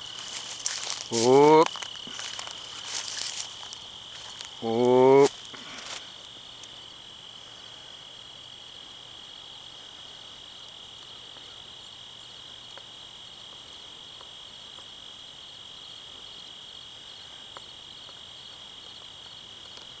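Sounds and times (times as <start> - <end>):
crickets trilling: 0.0 - 20.0
faint ticks: 18.8 - 20.0.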